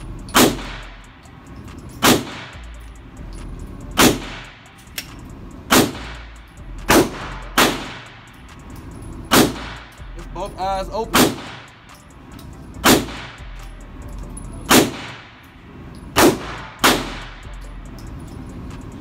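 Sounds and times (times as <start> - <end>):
gunshots echoing indoors: 0.3 - 1.0, 1.8 - 2.6, 5.7 - 6.2, 6.9 - 10.0, 11.1 - 12.0, 14.7 - 17.4.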